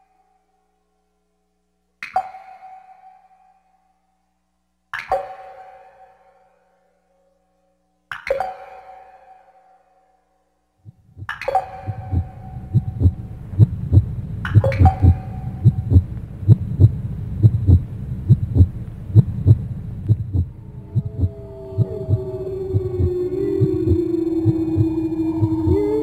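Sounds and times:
heartbeat thumps: 10.9s - 25.8s
low rumble: 10.9s - 26.0s
gliding tones: 20.0s - 26.0s.

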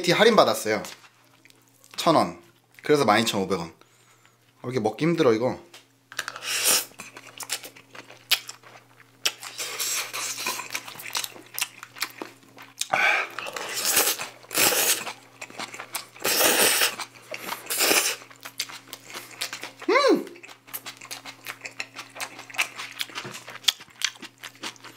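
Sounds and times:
chewing: 6.9s - 24.9s
slurping noodles: 12.9s - 15.2s, 16.2s - 18.3s.

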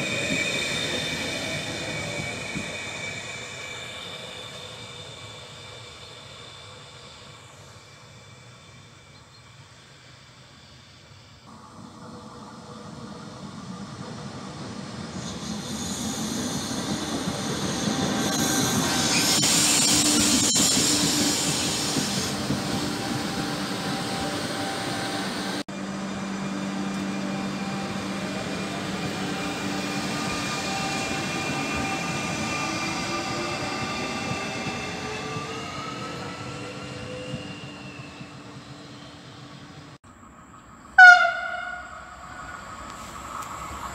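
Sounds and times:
passenger train passing: 0.0s - 43.9s
train motor whine: 11.5s - 39.9s.

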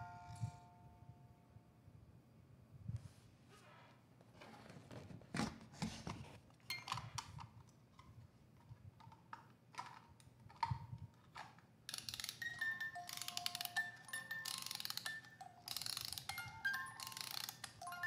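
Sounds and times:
music box being handled: 9.0s - 18.0s
music box chiming tune: 12.1s - 18.0s.

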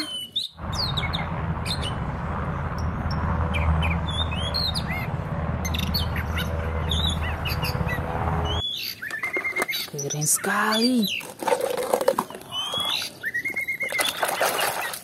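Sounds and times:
small birds chirping: 0.0s - 11.4s, 12.0s - 15.0s.

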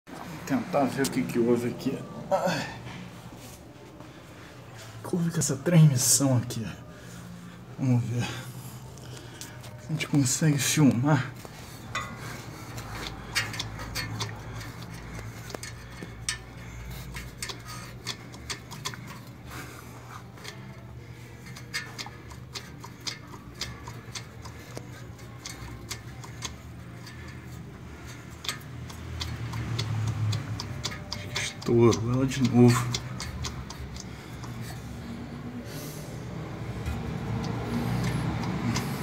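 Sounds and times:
steady low hum: 0.1s - 39.0s
driveshaft clicking and knocking: 11.9s - 19.4s, 21.4s - 34.8s.

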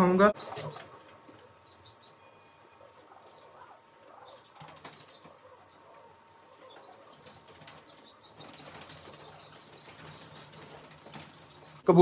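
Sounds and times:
pigeons flapping wings: 4.2s - 5.6s, 6.6s - 11.8s.

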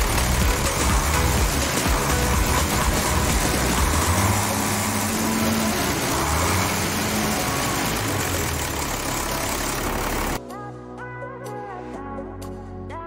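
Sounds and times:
tractor engine running: 0.0s - 10.4s.

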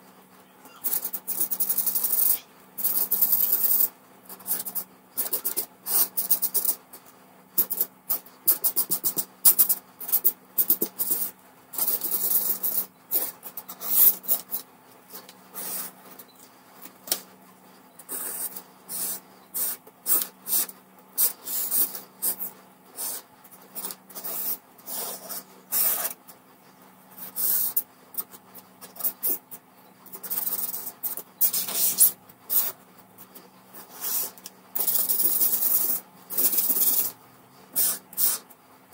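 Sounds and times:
marker scratching on paper: 0.7s - 6.8s, 7.6s - 16.1s, 18.1s - 26.2s, 27.2s - 38.5s.

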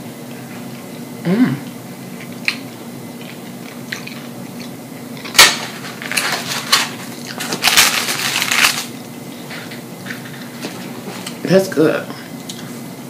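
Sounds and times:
paper wrapping crinkling: 5.4s - 9.0s
sharp paper crackle: 5.4s - 9.0s.

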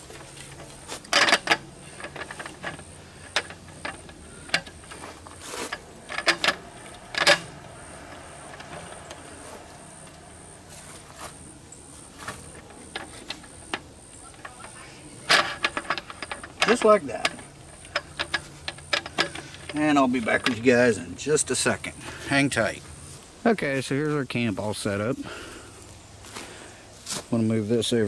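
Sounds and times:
metal slats clacking and rattling: 1.1s - 11.4s, 12.1s - 20.8s.

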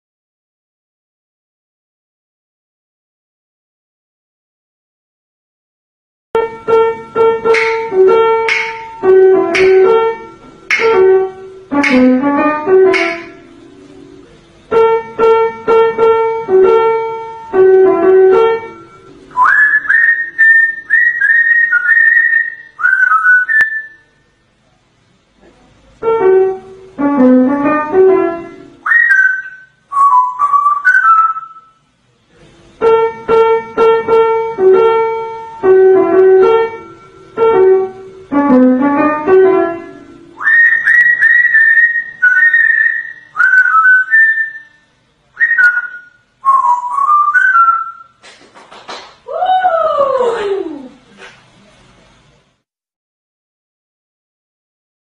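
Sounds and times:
piano melody: 6.4s - 23.8s, 26.0s - 31.6s, 32.8s - 44.7s
parrot whistling: 18.7s - 24.1s, 28.8s - 31.8s, 40.4s - 44.8s, 45.4s - 48.2s.

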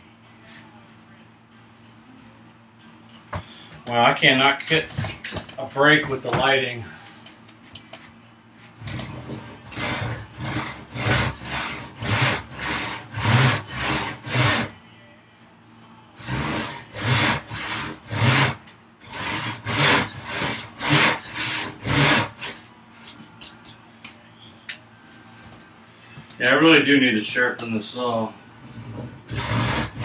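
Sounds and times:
hand saw cutting wood: 8.8s - 14.7s, 16.2s - 22.6s, 29.3s - 30.0s.

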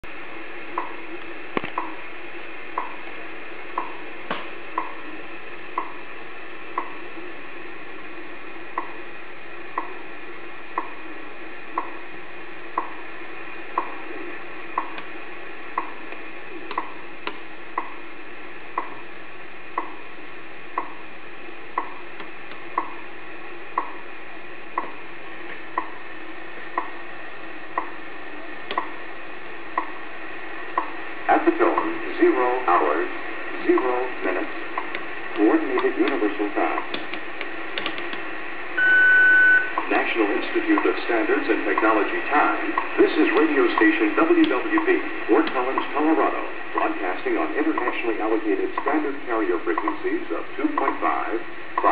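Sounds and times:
radio crackle: 0.0s - 51.9s
radio static hiss: 0.0s - 51.9s
radio time signal ticks: 0.7s - 2.0s, 2.7s - 3.0s, 3.7s - 4.1s, 4.7s - 5.1s, 5.7s - 6.0s, 6.7s - 7.0s, 8.7s - 9.0s, 9.7s - 10.0s, 10.7s - 11.1s, 11.7s - 12.1s, 12.7s - 13.1s, 13.7s - 14.0s, 14.7s - 18.1s, 18.7s - 19.1s, 19.7s - 20.1s, 20.7s - 21.0s, 21.7s - 23.0s, 23.7s - 24.1s, 24.7s - 26.0s, 26.7s - 27.0s, 27.7s - 28.0s, 28.7s - 29.0s, 29.7s - 30.0s, 30.7s - 51.1s.

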